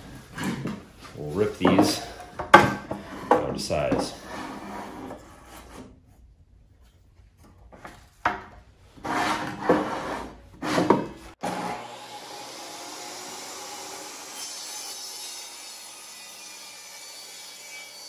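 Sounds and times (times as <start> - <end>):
wooden boards scraping on metal: 0.0 - 6.0, 9.0 - 11.8
boards knocking: 1.6 - 4.1.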